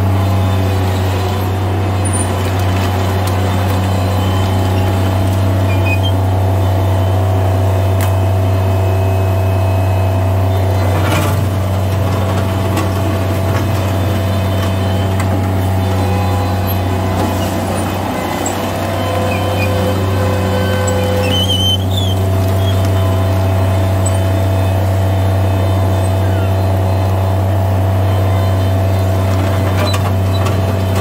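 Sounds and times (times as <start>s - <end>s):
diesel engine running: 0.0s - 31.0s
loader bucket clattering on gravel: 1.1s - 6.5s, 10.7s - 26.2s.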